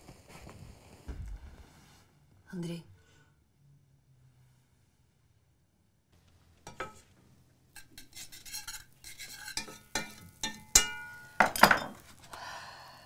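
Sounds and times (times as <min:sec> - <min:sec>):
knife scraping plate: 0:07.8 - 0:10.6.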